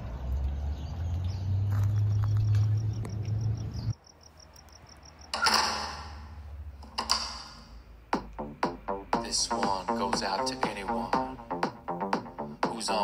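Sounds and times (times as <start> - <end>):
metal mesh gate clanging: 5.3 - 6.3.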